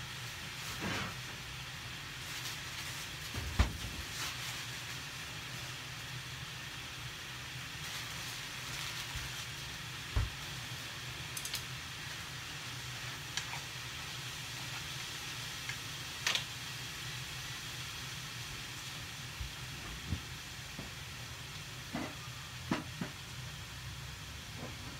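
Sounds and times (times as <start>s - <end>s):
food sizzling in a frying pan: 0.0s - 24.9s
chopsticks clicking against pan: 11.4s - 11.7s.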